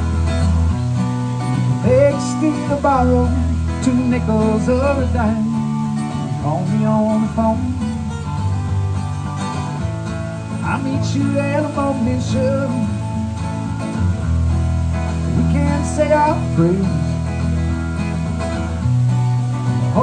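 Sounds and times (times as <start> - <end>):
acoustic guitar strumming: 0.0 - 20.0
person singing: 1.6 - 8.3, 10.6 - 13.4, 15.3 - 17.3.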